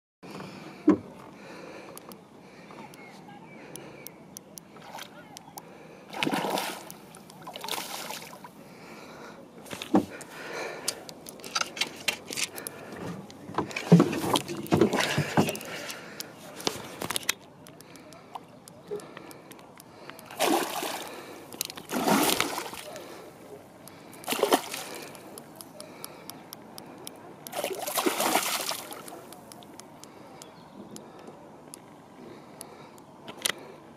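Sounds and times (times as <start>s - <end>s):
fish splashing water: 6.1s - 8.5s, 13.6s - 17.1s, 17.7s - 30.0s.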